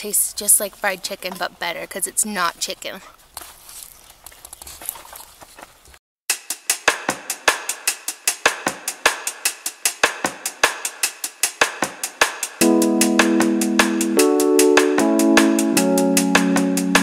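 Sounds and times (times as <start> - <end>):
music with fast drum beat: 6.3 - 17.0.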